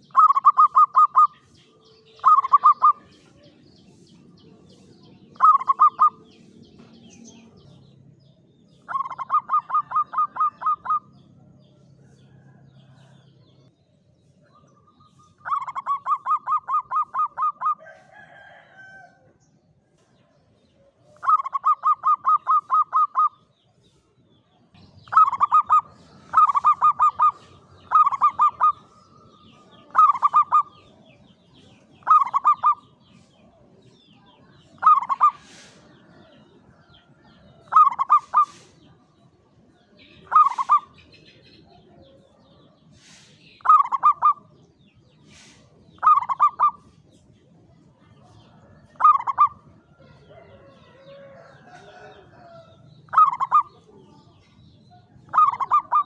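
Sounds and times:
dove cooing: 0:00.0 - 0:01.4, 0:02.1 - 0:03.1, 0:05.4 - 0:06.4, 0:08.8 - 0:11.2, 0:15.4 - 0:17.8, 0:21.1 - 0:23.4, 0:25.0 - 0:31.0, 0:32.0 - 0:32.9, 0:34.7 - 0:36.4, 0:37.6 - 0:38.8, 0:40.2 - 0:41.0, 0:43.1 - 0:44.6, 0:45.4 - 0:46.8, 0:48.9 - 0:53.8, 0:55.0 - 0:56.0.

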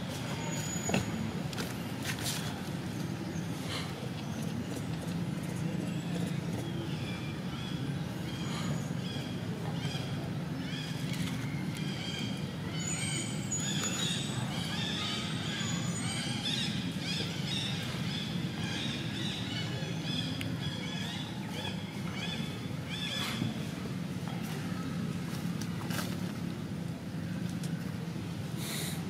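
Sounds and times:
small birds chirping: 0:02.9 - 0:23.6.

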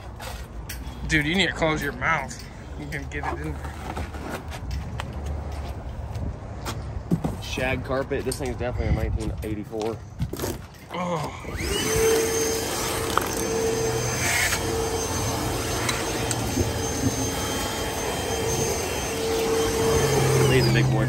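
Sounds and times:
shop vacuum running: 0:11.5 - 0:21.0.

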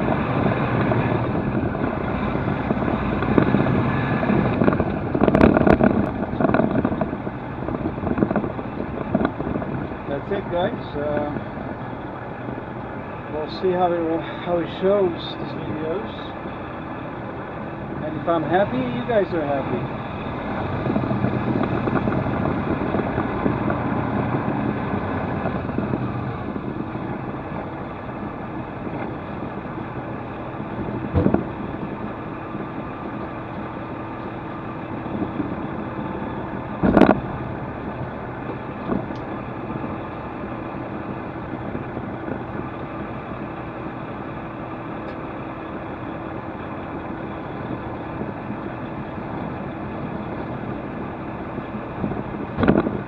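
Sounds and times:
truck diesel engine humming: 0:00.0 - 0:53.0
sharp knocks: 0:31.1 - 0:31.7.

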